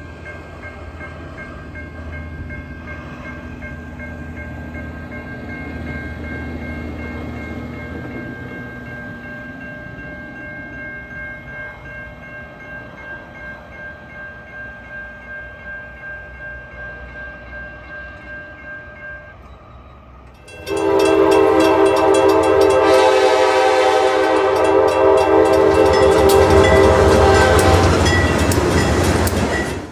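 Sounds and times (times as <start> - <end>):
railroad crossing bell ringing: 0.0 - 29.9
rumble of passing train: 0.0 - 29.9
locomotive horn: 20.5 - 28.4.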